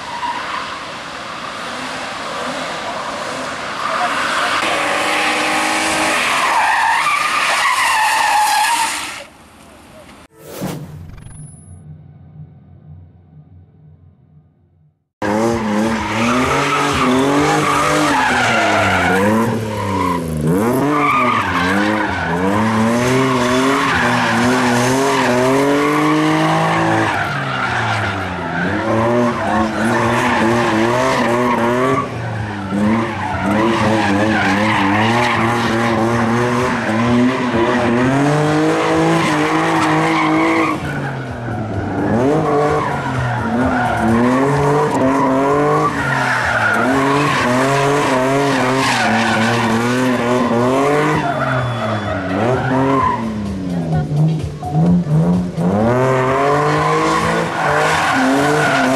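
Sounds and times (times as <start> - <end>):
tyres squealing and skidding: 0.0 - 10.0, 15.3 - 58.9
car engine revving hard: 46.7 - 58.9.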